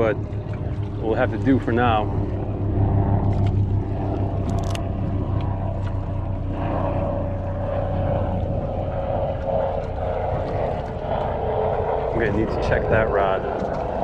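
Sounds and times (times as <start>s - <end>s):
outboard motor humming: 0.0s - 14.0s.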